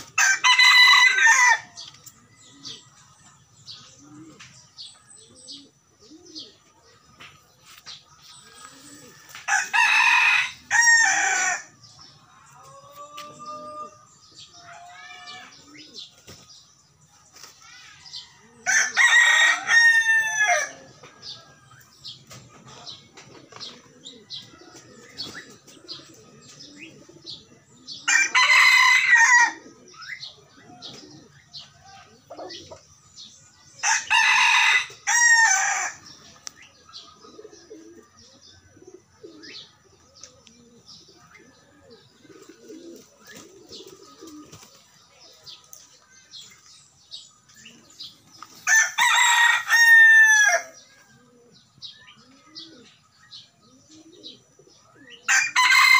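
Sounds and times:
rooster crowing: 0.2 - 1.7, 9.0 - 11.7, 48.6 - 50.8, 55.3 - 55.9.

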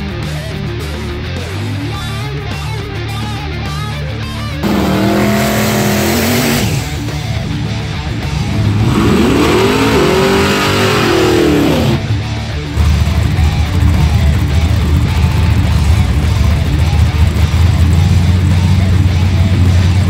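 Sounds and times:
guitar music: 0.0 - 20.0
drag car engine revving: 0.2 - 20.0
car burnout: 4.3 - 20.0.

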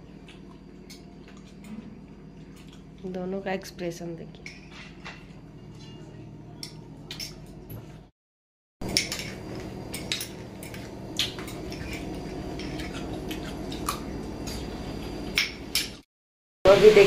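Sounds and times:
steady low hum: 8.8 - 16.0.

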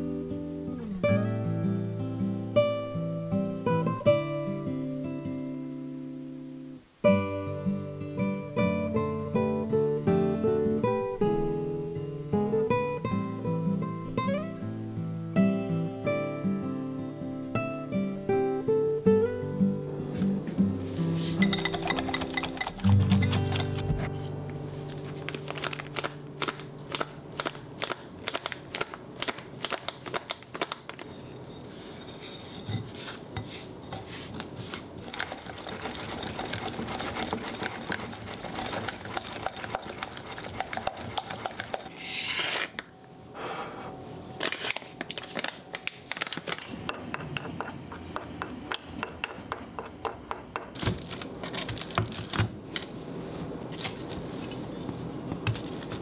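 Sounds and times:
utensil scraping glass bowl: 21.2 - 24.0, 31.6 - 34.4, 35.0 - 42.8.

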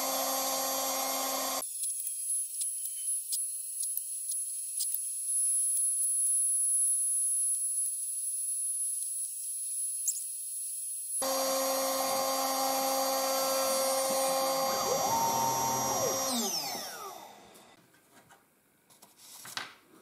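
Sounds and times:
cnc spindle milling whine: 0.0 - 1.6, 11.2 - 17.8.

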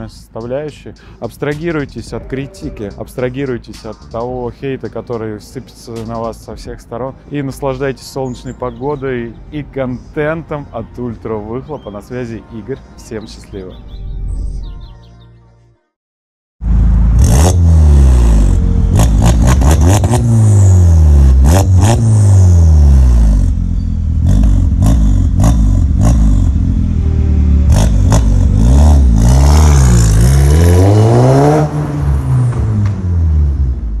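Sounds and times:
car accelerating away: 16.6 - 34.0
car engine revving: 16.6 - 34.0.

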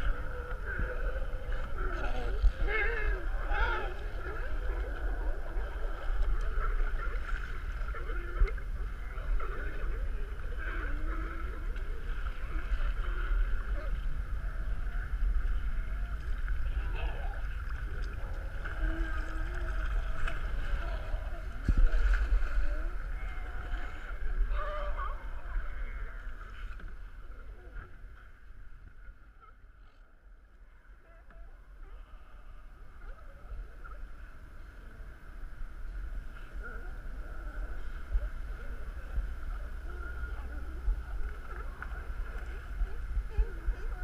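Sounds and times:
sea lions barking: 0.0 - 7.1, 22.7 - 26.5
wind rumble on microphone: 0.0 - 44.0.

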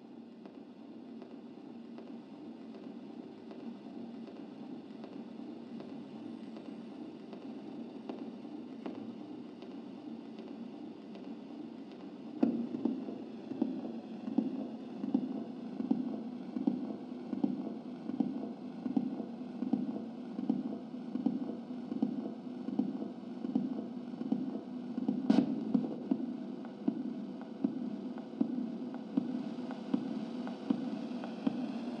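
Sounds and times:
throbbing low radio hum: 12.2 - 32.0.

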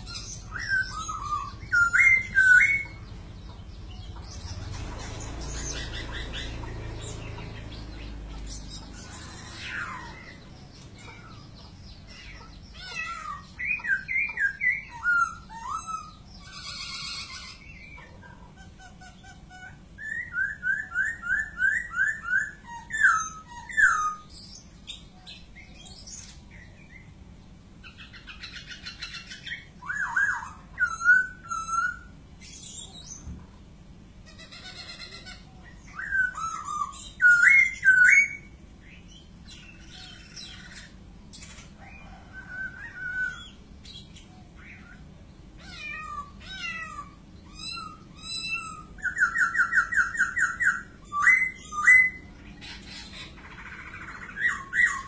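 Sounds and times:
bird whistled song: 0.0 - 18.2, 19.0 - 27.1, 27.8 - 33.3, 34.4 - 45.0, 46.8 - 55.0.

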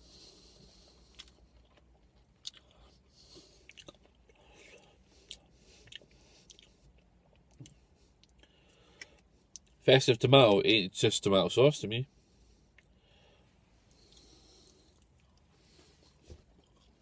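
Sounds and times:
faint chewing: 0.2 - 9.8, 13.9 - 17.0.

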